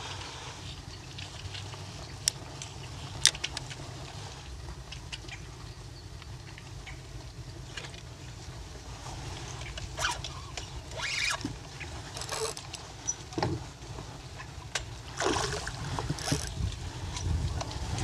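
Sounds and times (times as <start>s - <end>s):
wind rumble on microphone: 12.9s - 18.0s
fish splashing at surface: 15.1s - 16.5s.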